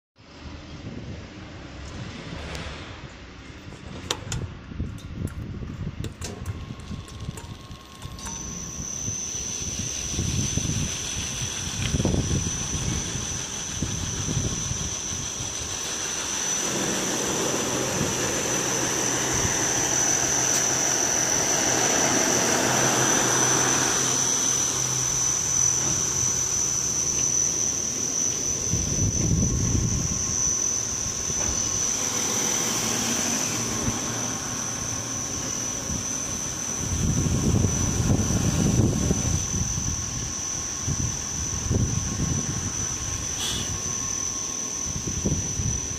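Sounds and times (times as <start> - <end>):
sanding machine whirring: 6.4 - 45.9.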